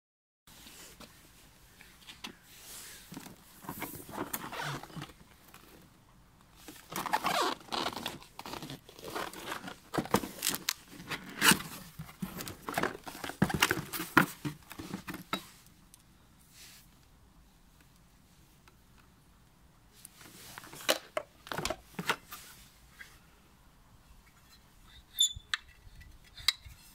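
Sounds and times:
cardboard scraping and rustling: 3.0 - 5.7, 6.6 - 15.6.

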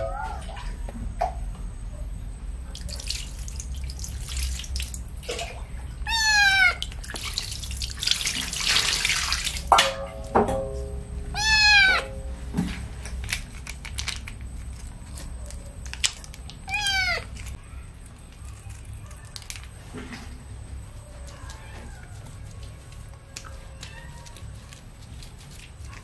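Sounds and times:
water pouring and splashing: 2.7 - 10.2
kitten meowing: 6.0 - 6.8, 11.3 - 12.2, 16.6 - 17.4.

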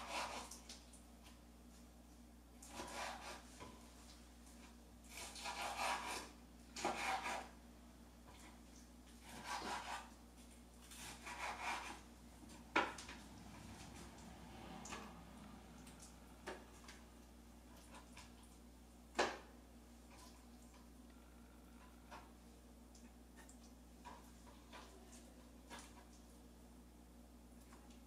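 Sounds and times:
knife sawing through meat: 0.0 - 0.5, 2.7 - 3.5, 5.1 - 7.5, 9.2 - 10.1, 10.9 - 12.0.

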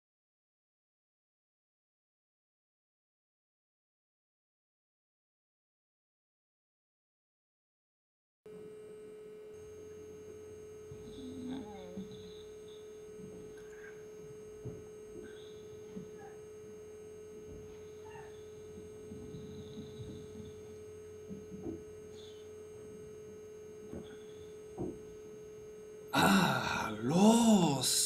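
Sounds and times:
faint steady hum: 8.5 - 28.0.

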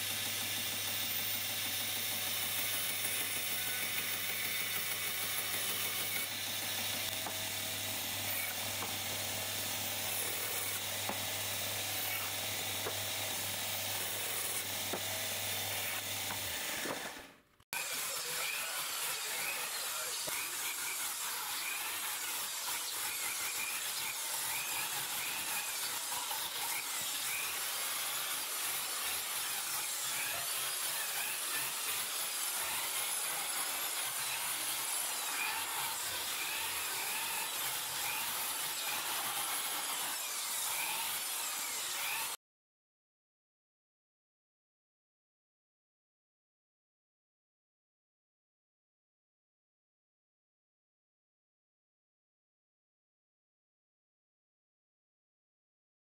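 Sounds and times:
band saw cutting wood: 0.0 - 42.4
electric drill whine: 0.0 - 42.4.

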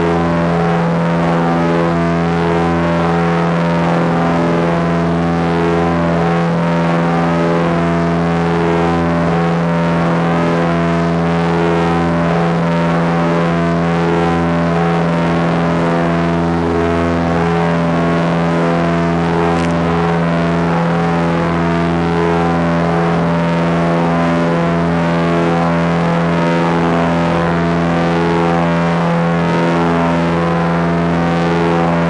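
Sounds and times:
small plane engine drone: 0.0 - 32.0.

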